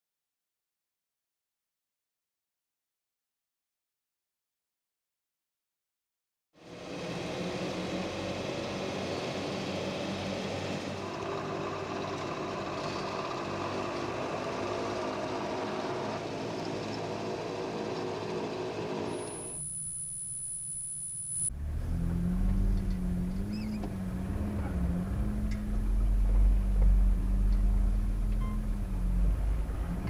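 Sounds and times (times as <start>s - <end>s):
vehicle engine running: 6.6s - 19.8s, 20.7s - 30.0s.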